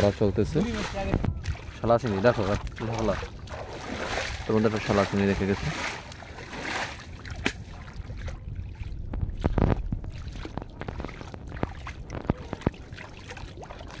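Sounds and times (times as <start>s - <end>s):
muddy water splashing and sloshing: 0.0s - 14.0s.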